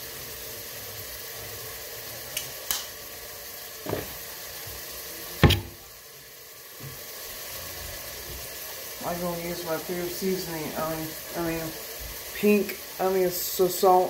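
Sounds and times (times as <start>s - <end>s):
food sizzling in a pot: 0.0s - 14.0s
sharp knock: 5.4s - 5.8s.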